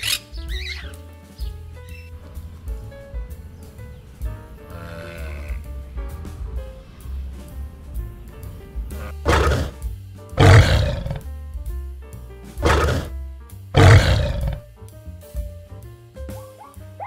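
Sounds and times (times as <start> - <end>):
animal harsh calls: 0.0 - 1.0, 3.3 - 5.7, 8.9 - 9.8, 10.4 - 11.3, 12.6 - 13.1, 13.8 - 14.6, 16.3 - 16.9
background music: 0.0 - 17.0.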